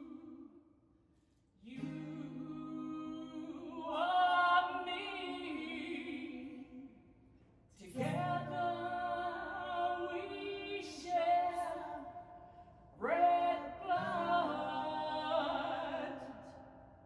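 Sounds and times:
woman singing unaccompanied: 0:01.6 - 0:06.9, 0:07.8 - 0:12.2, 0:13.0 - 0:16.6.

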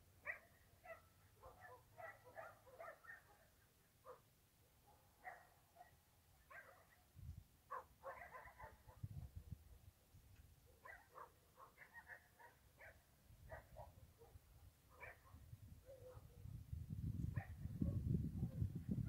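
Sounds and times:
faint dog barking: 0:00.2 - 0:07.1, 0:07.7 - 0:09.9, 0:10.6 - 0:16.6, 0:17.3 - 0:18.8.

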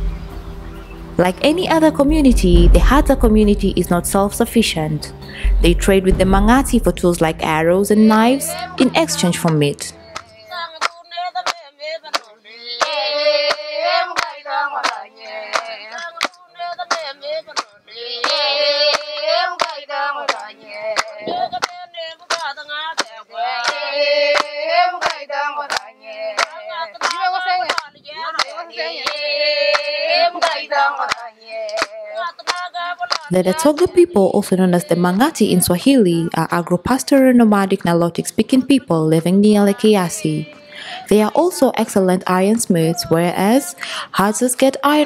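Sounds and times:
women singing together: 0:07.3 - 0:45.0
steady hand clapping: 0:10.1 - 0:23.8, 0:24.4 - 0:33.9.

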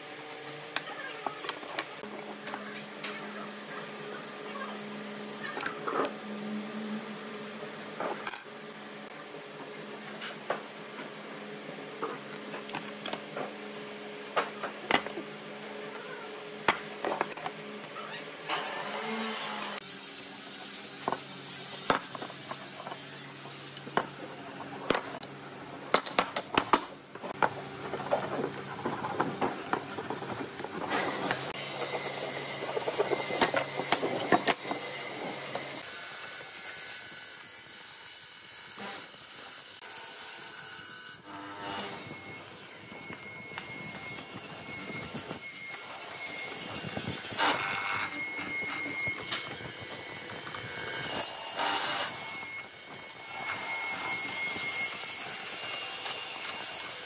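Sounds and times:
thin high whine: 0:42.0 - 0:55.0.

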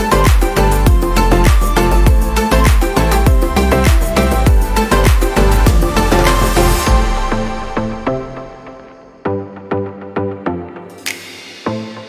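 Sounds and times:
dance music with deep drum beat: 0:00.0 - 0:08.4.

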